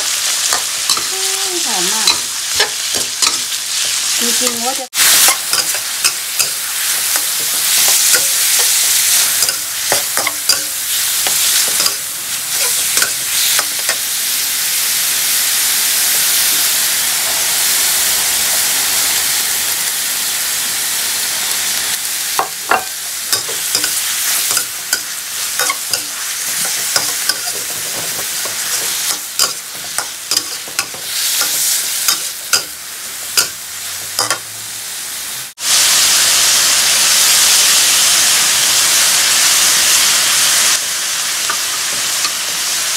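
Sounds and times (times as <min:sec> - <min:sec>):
meat sizzling in a wok: 0:00.0 - 0:42.9
metal spatula scraping wok: 0:00.4 - 0:14.0, 0:22.7 - 0:34.6.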